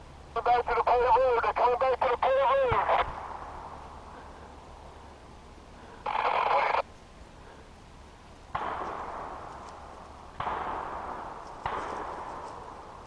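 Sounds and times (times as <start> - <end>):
distant gunshots echoing: 2.6 - 4.6, 8.5 - 13.0.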